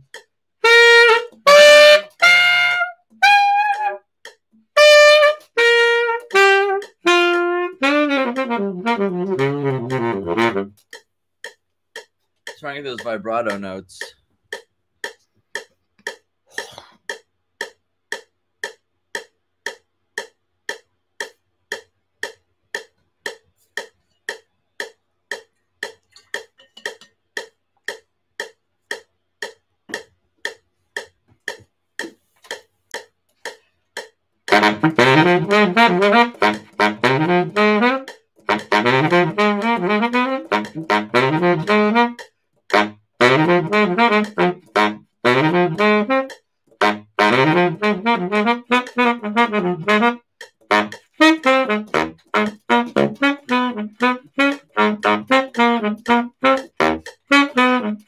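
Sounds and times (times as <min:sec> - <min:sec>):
metronome clicking: 0:00.0 - 0:58.0
baritone saxophone playing: 0:00.6 - 0:04.1, 0:04.8 - 0:10.8, 0:34.5 - 0:58.0.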